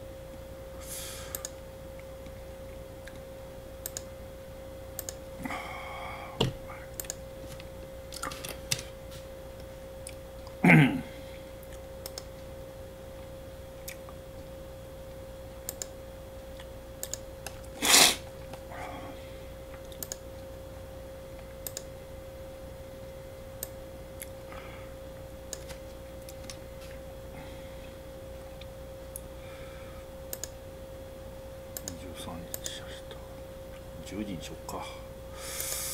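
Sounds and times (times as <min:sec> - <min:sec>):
steady hum: 0:00.0 - 0:35.9
computer mouse and keyboard clicks: 0:19.8 - 0:20.2, 0:21.6 - 0:21.9, 0:25.5 - 0:26.6.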